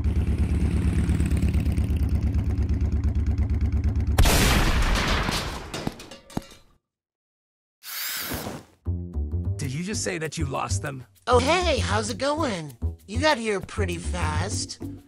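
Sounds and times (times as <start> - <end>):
engine running: 0.0 - 4.2
echoing gunshot: 4.2 - 5.3.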